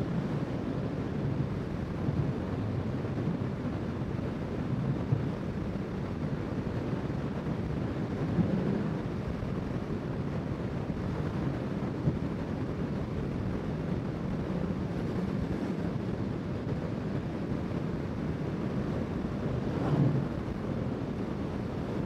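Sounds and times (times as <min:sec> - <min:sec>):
gusty wind on microphone: 0:00.0 - 0:22.0
road noise: 0:11.4 - 0:22.0.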